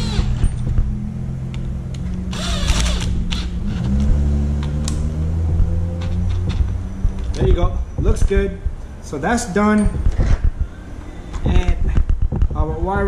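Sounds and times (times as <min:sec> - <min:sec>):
cordless drill motor hum: 0:02.3 - 0:03.4.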